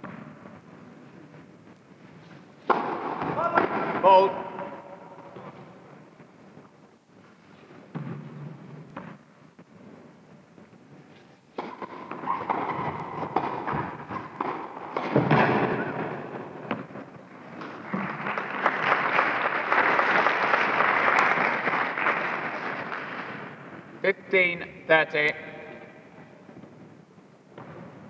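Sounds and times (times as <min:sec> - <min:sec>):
tennis ball strikes: 0:02.6 - 0:04.0, 0:11.5 - 0:17.8
audience applauding: 0:17.4 - 0:23.5.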